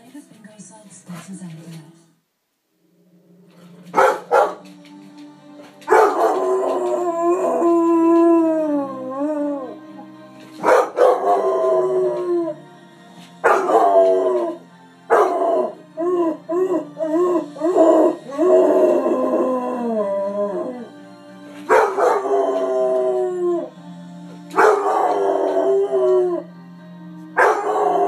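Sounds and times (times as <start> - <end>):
television theme music: 0.0 - 28.0
puppy howling: 5.9 - 9.8, 10.6 - 12.6, 13.4 - 20.9, 21.7 - 23.7, 24.6 - 26.5, 27.4 - 28.0.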